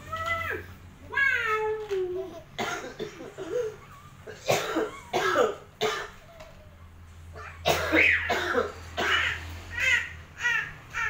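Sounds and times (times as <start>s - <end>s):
person coughing: 2.6s - 6.2s, 7.7s - 9.1s.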